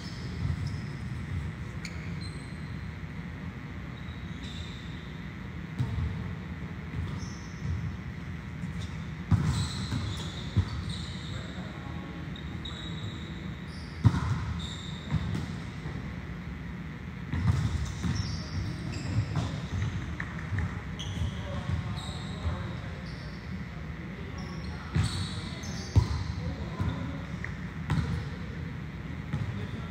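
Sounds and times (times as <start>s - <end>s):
shoe squeaks: 0.0s - 3.0s, 3.9s - 5.3s, 7.0s - 7.8s, 8.7s - 15.4s, 17.8s - 23.6s, 24.3s - 27.2s
steady hall hum: 0.0s - 29.9s
volleyball slaps and bounces: 9.3s - 10.8s, 17.3s - 18.2s.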